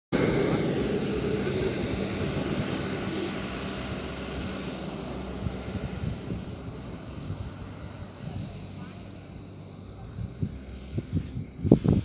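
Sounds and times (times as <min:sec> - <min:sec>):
engine drone with low hum: 0:00.1 - 0:12.0.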